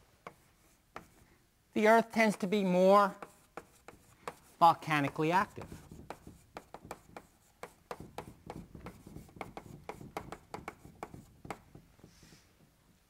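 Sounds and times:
pen scratching on paper: 0.2s - 1.3s, 3.1s - 11.7s.

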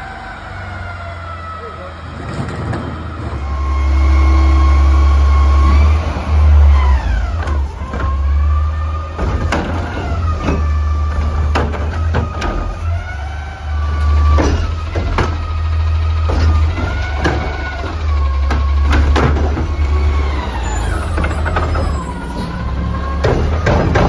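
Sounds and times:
garbage truck engine revving: 0.0s - 24.0s
hydraulic whine: 2.4s - 24.0s
cart and arm banging: 14.1s - 24.0s.

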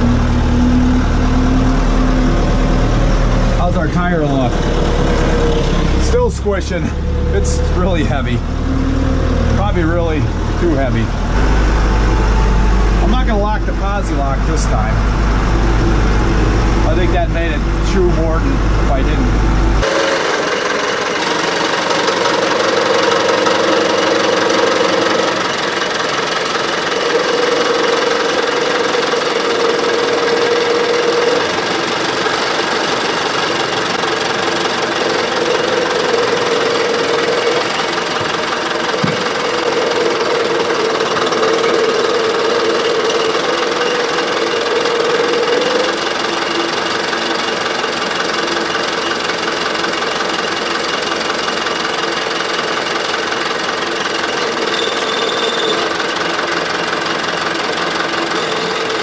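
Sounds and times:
whining tone: 0.0s - 52.6s, 54.0s - 56.9s, 57.6s - 59.0s
diesel engine running under load: 0.0s - 59.0s.

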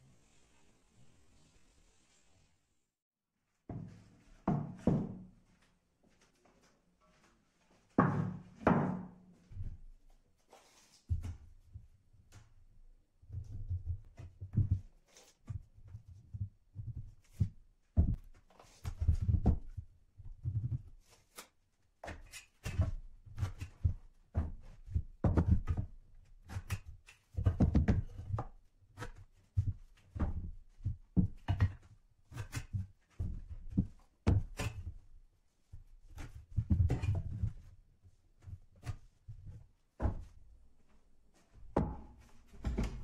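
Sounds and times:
knocks and thuds on worktable: 3.7s - 5.3s, 8.0s - 9.3s, 41.7s - 43.0s.

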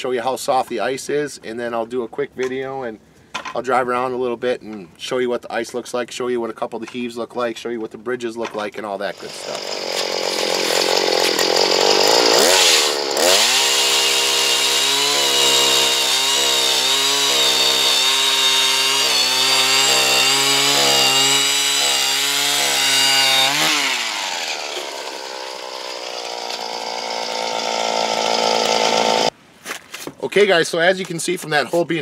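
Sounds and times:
ice auger engine boring: 9.1s - 29.3s.

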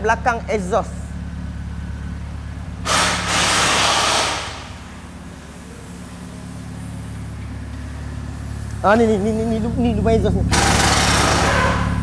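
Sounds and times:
car engine idling: 0.0s - 12.0s
loud rushing noise: 2.8s - 4.9s.

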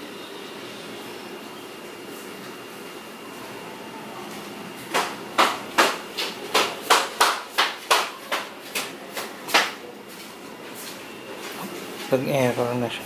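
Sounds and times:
sharp knocks like hammer blows: 4.9s - 9.8s.

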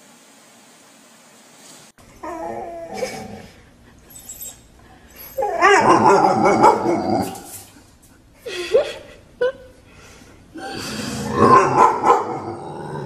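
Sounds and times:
dog whining: 2.1s - 7.8s.

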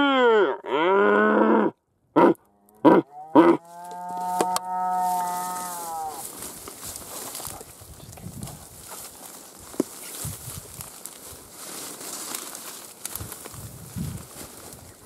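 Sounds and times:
stag roaring: 0.0s - 6.3s.

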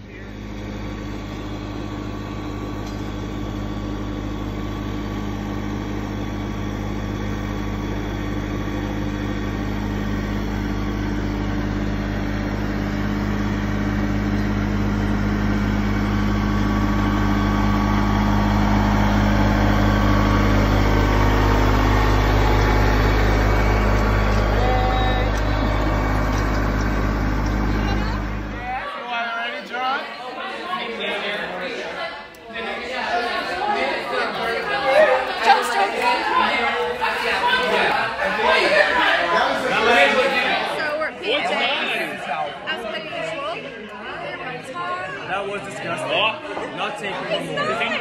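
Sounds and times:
diesel tractor engine running: 0.0s - 28.9s.

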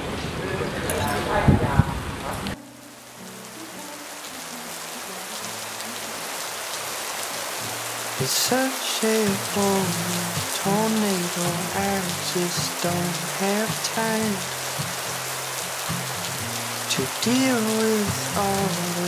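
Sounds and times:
rain falling on water and paving: 2.2s - 19.0s
background music with gliding melody: 2.6s - 6.4s.

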